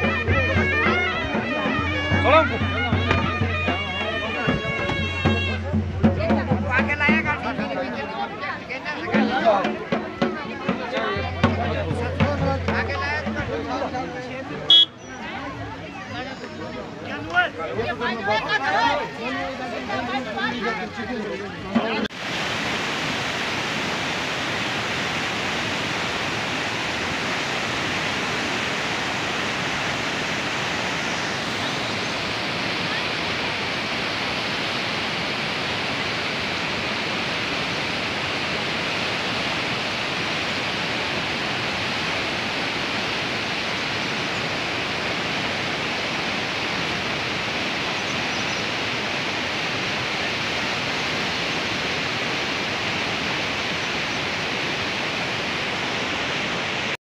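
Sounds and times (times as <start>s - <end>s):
river rushing over boulders: 17.3s - 57.0s.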